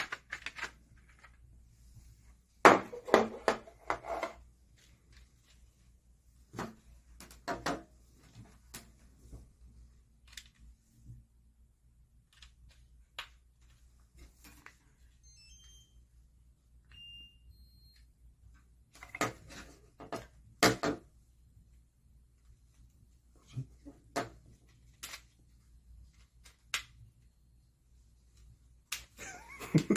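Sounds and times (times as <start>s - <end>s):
short electronic beeps: 16.9s - 18.0s.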